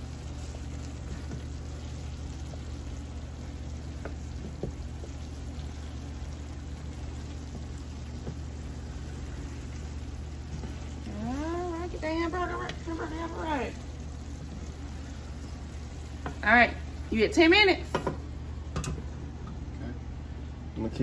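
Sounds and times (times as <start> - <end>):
wooden spatula stirring and scraping: 0.0 - 16.4
sauce simmering in a skillet: 0.0 - 20.7
steady low hum: 0.0 - 21.0.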